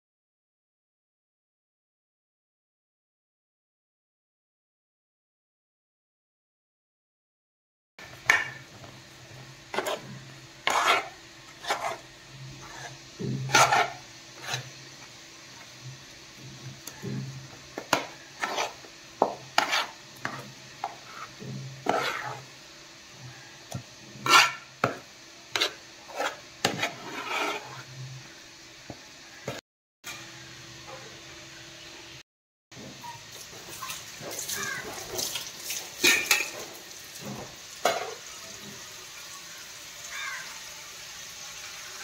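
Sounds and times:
metal spoon scraping a bowl: 0:09.7 - 0:14.8, 0:17.8 - 0:22.5, 0:24.2 - 0:28.0.

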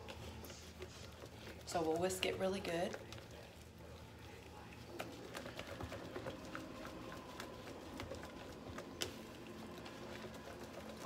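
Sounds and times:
whisk knocking bowl: 0:04.2 - 0:11.0.

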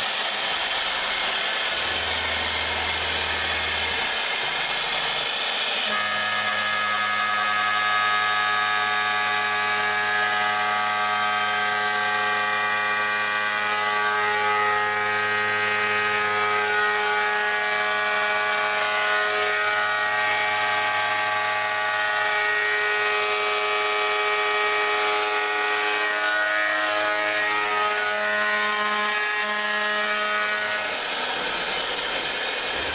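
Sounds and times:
spindle whine: 0:00.5 - 0:05.2.

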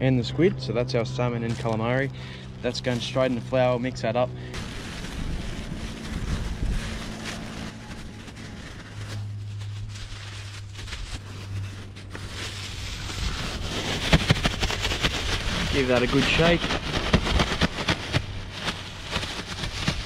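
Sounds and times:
low steady hum: 0:00.0 - 0:20.0
wind buffeting microphone: 0:04.5 - 0:09.1
plastic bags crinkling: 0:04.5 - 0:20.0.

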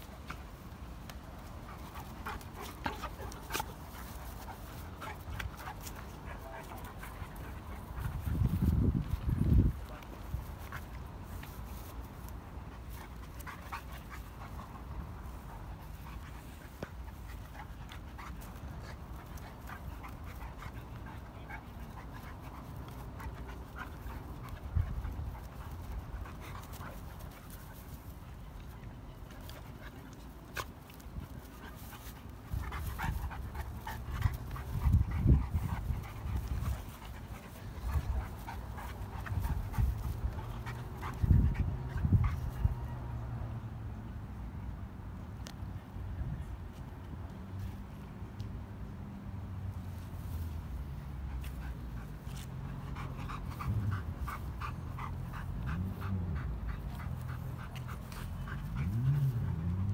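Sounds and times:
dogs wrestling: 0:00.0 - 0:28.5, 0:29.3 - 0:42.8, 0:51.1 - 0:59.9.

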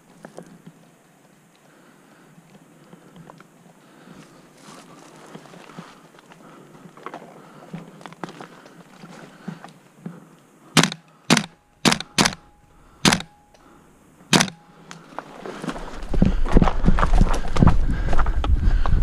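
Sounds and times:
airsoft gun shots: 0:10.8 - 0:12.4, 0:13.0 - 0:13.3, 0:14.3 - 0:14.6
soft footsteps: 0:14.9 - 0:19.0.

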